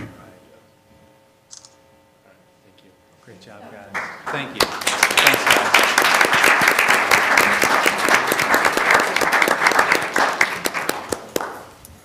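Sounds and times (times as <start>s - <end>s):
audience applauding: 3.9s - 11.7s.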